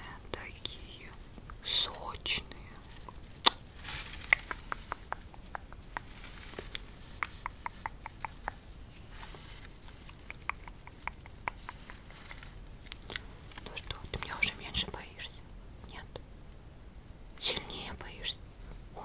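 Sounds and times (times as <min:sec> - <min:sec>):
wet lip and tongue clicks: 0:04.2 - 0:14.5.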